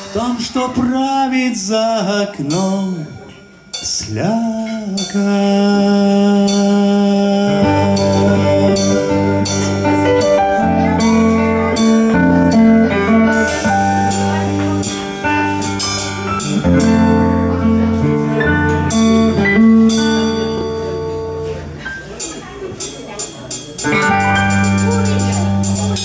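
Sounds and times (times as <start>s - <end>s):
keyboard: 0.0s - 26.0s
sustained bass line: 3.8s - 21.8s, 23.8s - 26.0s
electric guitar: 6.5s - 21.9s, 23.8s - 26.0s
cymbals struck: 7.9s - 26.0s.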